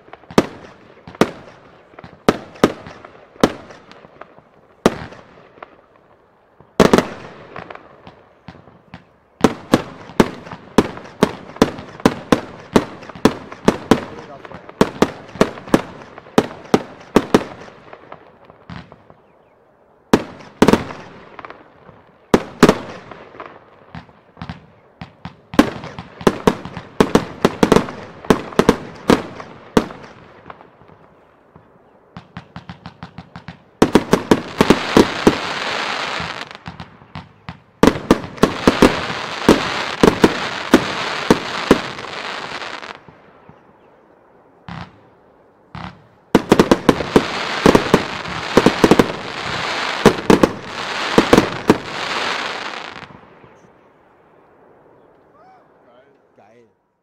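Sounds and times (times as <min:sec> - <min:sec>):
firework crackle: 0:00.0 - 0:19.3, 0:32.2 - 0:43.3, 0:45.8 - 0:53.4
firework bangs with echo: 0:31.6 - 0:43.7, 0:45.8 - 0:53.3.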